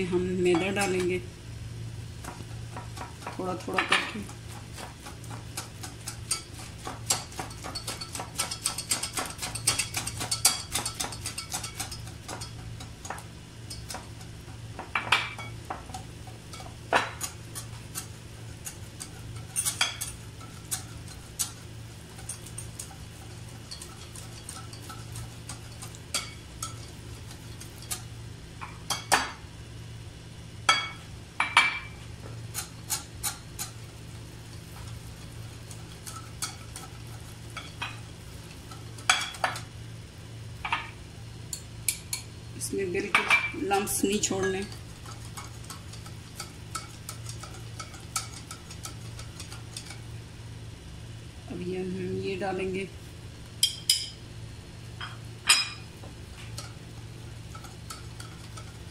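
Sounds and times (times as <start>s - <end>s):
whisk clicking in glass bowl: 4.2s - 14.2s, 15.4s - 28.0s, 34.6s - 37.9s, 43.7s - 50.0s.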